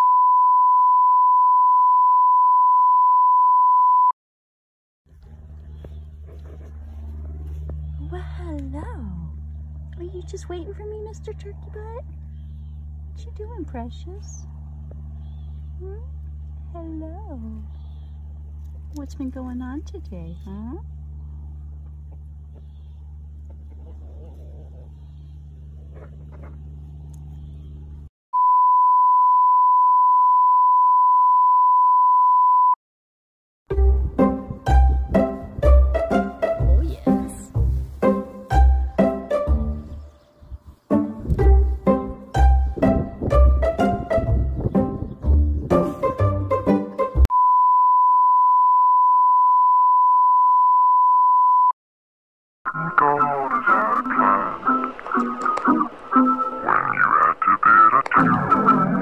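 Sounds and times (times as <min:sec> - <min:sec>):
high-pitched test tone beep: 0:00.0 - 0:04.1, 0:28.4 - 0:32.8, 0:47.3 - 0:51.7
low steady hum: 0:05.1 - 0:30.8
guitar music: 0:53.6 - 0:57.0.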